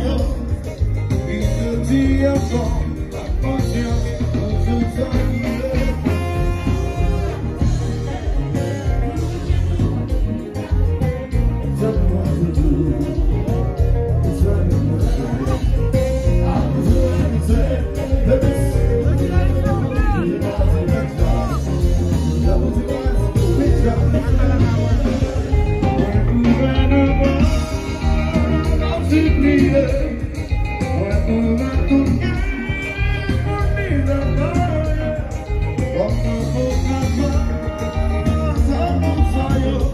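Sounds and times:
electric guitar: 0.0 - 39.9
heavy bass: 0.0 - 39.9
live band music: 0.0 - 39.9
person singing: 0.0 - 39.9
loud dance music: 14.1 - 30.3.

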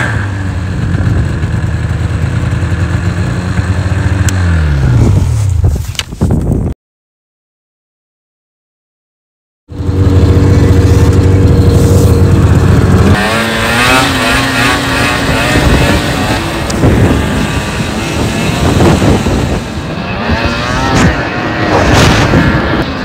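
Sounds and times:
snowmobile engine running hard: 0.0 - 6.0, 9.7 - 23.0.

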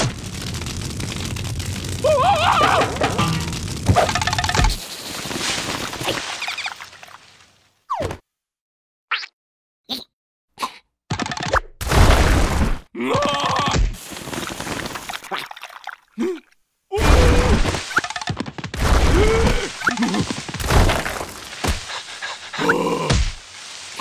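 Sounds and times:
wordless cartoon yelps and cries: 2.0 - 3.4.

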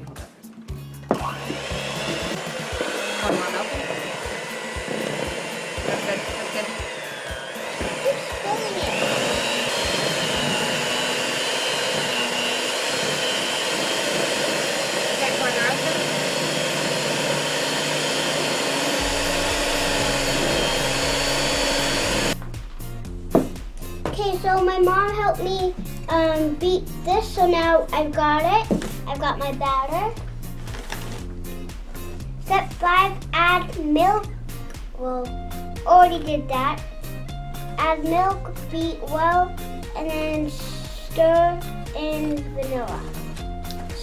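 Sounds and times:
background music with steady beat: 0.0 - 44.0
beaters churning thick batter: 1.1 - 22.4
electric hand mixer running: 1.1 - 22.4.

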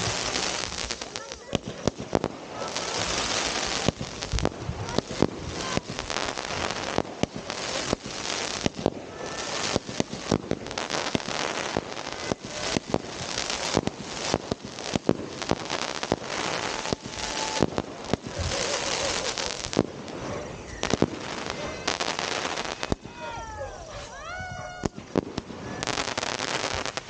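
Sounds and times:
fireworks bangs and pops: 0.0 - 27.0
fireworks hiss: 0.0 - 27.0.

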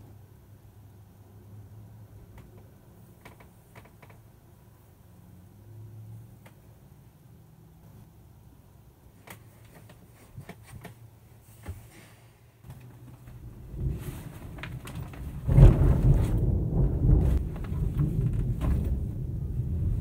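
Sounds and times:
thunder rumbling and crashing: 13.4 - 20.0.

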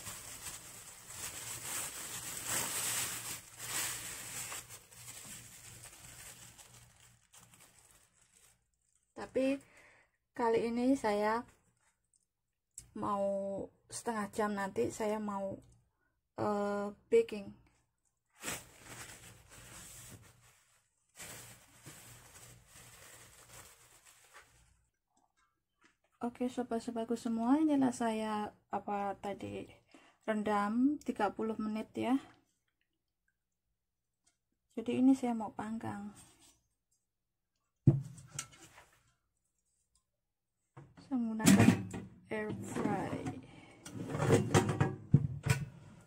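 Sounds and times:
plastic glove rustling: 0.0 - 9.3, 18.2 - 25.0.

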